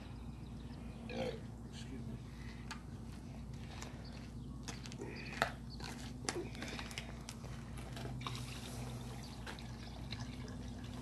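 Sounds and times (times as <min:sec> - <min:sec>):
broth pouring and splashing: 0:08.2 - 0:11.0.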